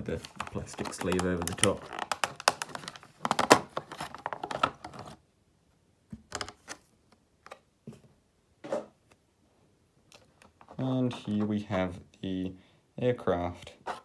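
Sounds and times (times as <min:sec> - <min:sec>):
plastic packaging crackling: 0:00.0 - 0:05.1.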